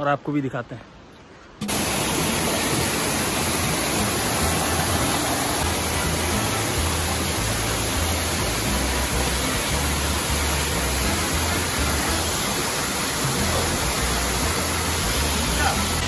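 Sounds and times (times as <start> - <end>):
water rushing over boulders: 1.6 - 16.0.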